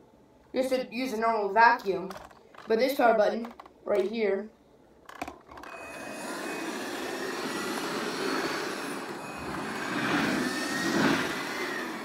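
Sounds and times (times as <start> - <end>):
handheld vacuum running: 5.5 - 12.0.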